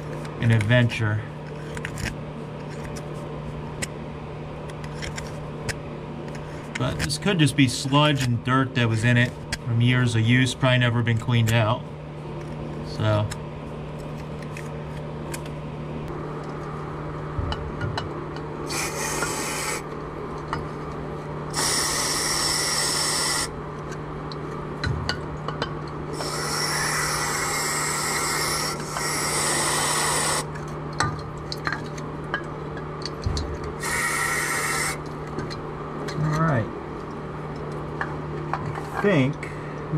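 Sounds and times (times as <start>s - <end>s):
aerosol spray hissing: 18.7s - 19.8s, 21.6s - 23.5s.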